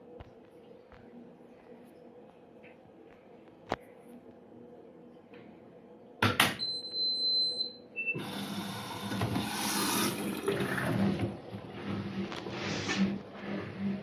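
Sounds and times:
water rushing into washer: 8.2 - 14.0.

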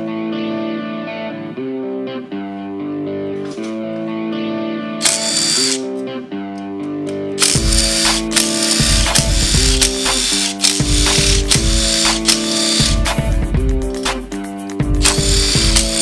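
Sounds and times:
guitar music with steady beat: 0.0 - 16.0
cordless power tool running: 5.0 - 5.8, 7.4 - 13.2, 15.0 - 16.0.

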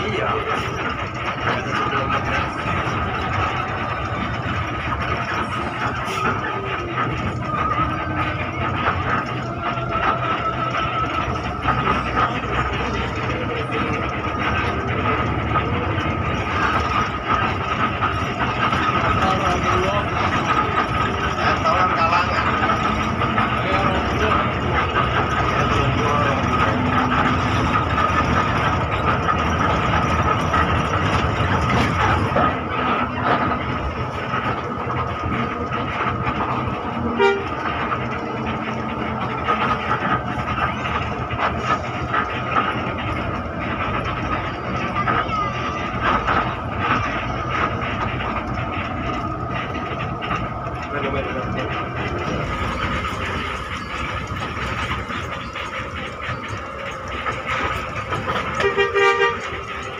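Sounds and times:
bus engine and road noise: 0.0 - 59.9
cabin fittings rattling: 0.0 - 59.9
constant high whine: 0.0 - 59.9
horn toot: 37.2 - 37.6, 58.6 - 59.5.

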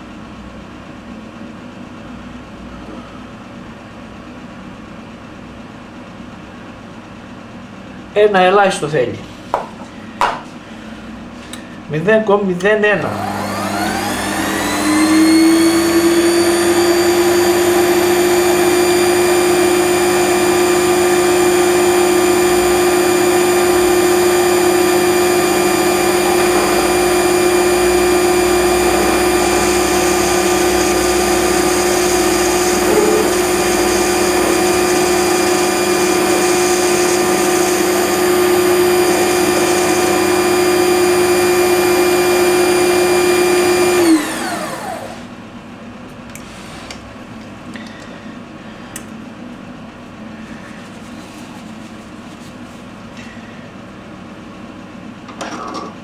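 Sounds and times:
lathe motor whine: 13.0 - 45.3
lathe spinning down: 13.1 - 45.2.

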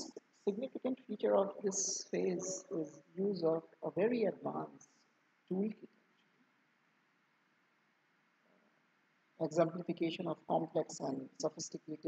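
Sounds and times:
faint microphone hiss: 0.0 - 12.0.

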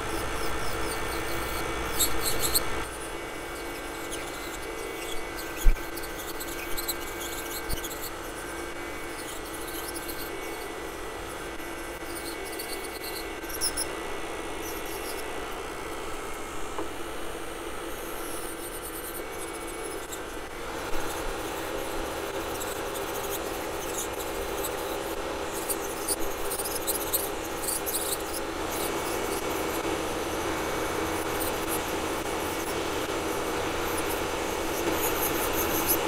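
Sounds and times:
nail drill grinding nails: 0.0 - 13.9
motor hum: 0.0 - 36.0.

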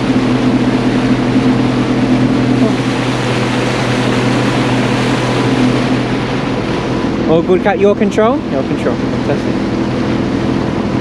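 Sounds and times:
rush of wind and water: 0.0 - 7.5
motorboat engine drone: 0.0 - 11.0.

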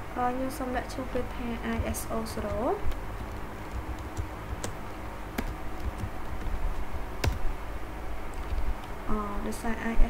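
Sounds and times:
low steady hum: 0.0 - 10.0
keyboard keystroke clicks: 7.2 - 7.4.

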